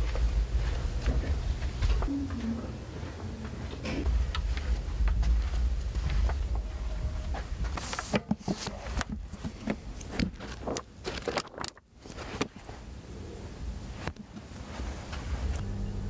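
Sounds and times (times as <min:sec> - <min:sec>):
pages rustling and flicking: 0:07.7 - 0:12.8.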